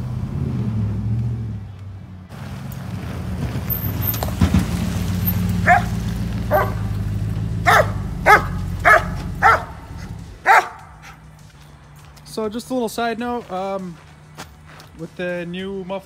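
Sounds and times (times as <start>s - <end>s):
truck exhaust rumble: 0.0s - 15.6s
dog barking: 5.6s - 7.0s, 7.6s - 11.2s.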